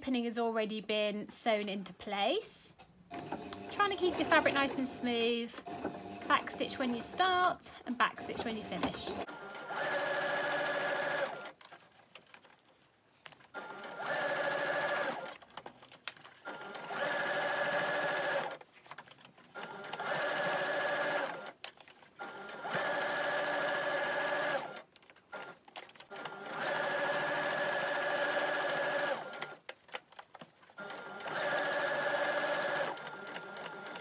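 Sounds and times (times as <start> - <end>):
electric sewing machine stitching: 3.1 - 11.6, 13.6 - 15.4, 16.4 - 18.6, 19.5 - 29.6, 30.6 - 34.0.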